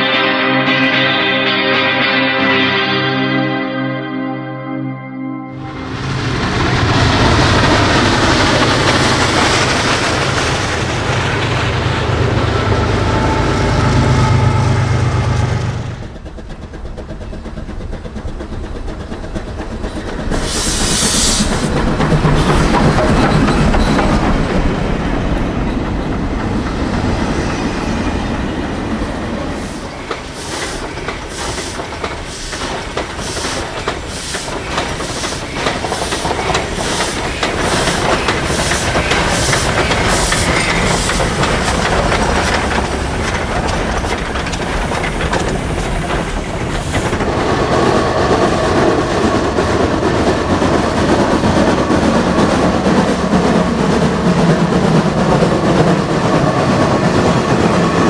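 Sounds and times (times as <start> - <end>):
train rumble: 5.5 - 58.0
locomotive chuffing beats: 5.9 - 58.0
steam hissing: 19.1 - 23.2, 29.4 - 48.5.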